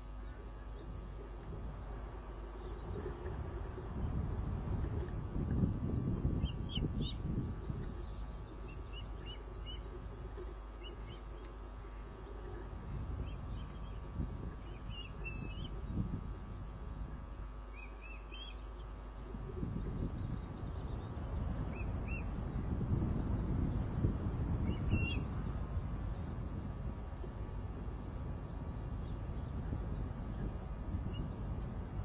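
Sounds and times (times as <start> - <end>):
ospreys chirping: 6.3 - 9.9, 14.6 - 15.8.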